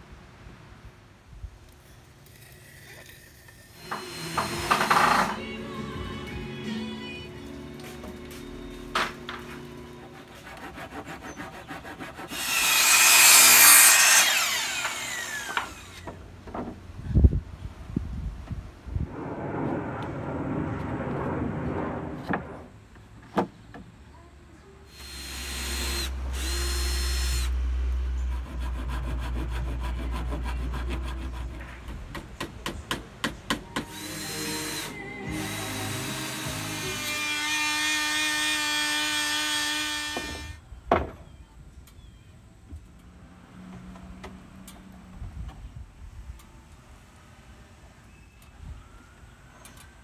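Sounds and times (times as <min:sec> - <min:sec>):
cordless drill driving screws: 0:03.8 - 0:05.5, 0:12.3 - 0:16.1, 0:24.9 - 0:27.5.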